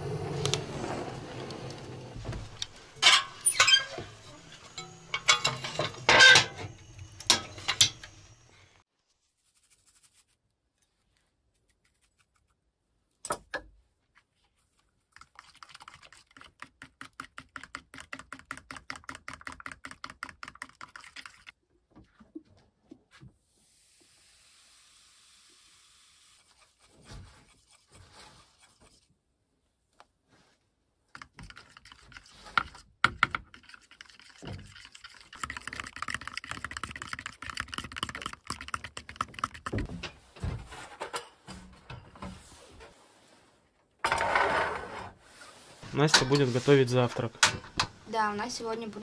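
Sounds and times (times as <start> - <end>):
fork beating batter in plastic bowl: 31.1 - 39.9.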